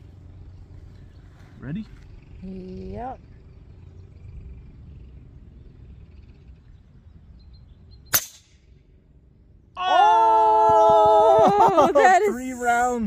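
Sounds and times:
air rifle shot: 8.1s - 8.6s.

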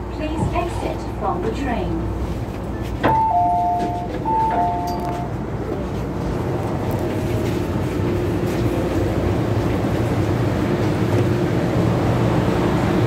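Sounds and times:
train rumble and hum: 0.0s - 13.0s
two-tone chime: 3.1s - 5.2s.

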